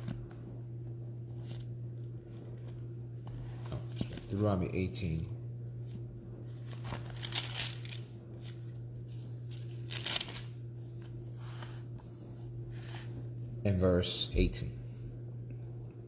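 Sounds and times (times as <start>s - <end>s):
steady low hum: 0.0s - 16.0s
pages rustling: 1.2s - 4.5s, 5.8s - 12.1s.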